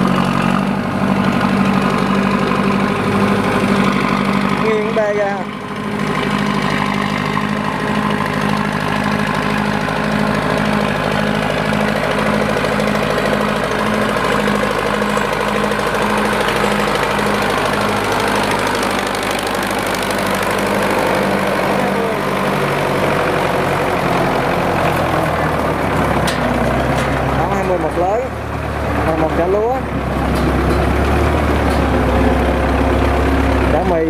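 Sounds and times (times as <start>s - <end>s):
tractor diesel engine running: 0.0s - 34.0s.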